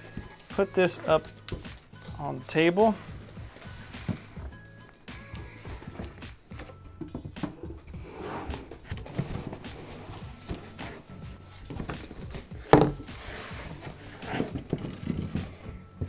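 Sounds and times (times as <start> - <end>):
cardboard rustling and scraping: 0.0 - 4.6, 5.4 - 15.9
knocks on cardboard box: 12.7 - 13.1.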